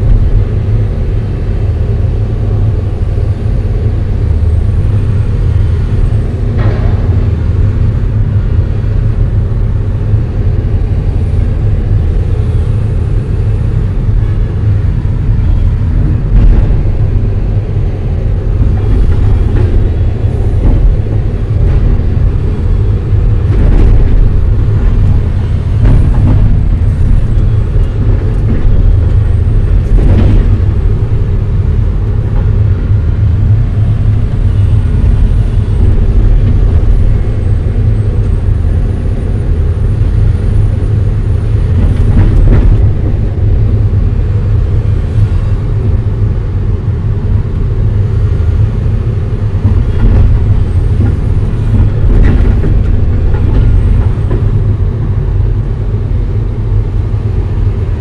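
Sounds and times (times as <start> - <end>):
loud diesel engine running: 0.0 - 58.0
machine clunks: 6.5 - 7.8.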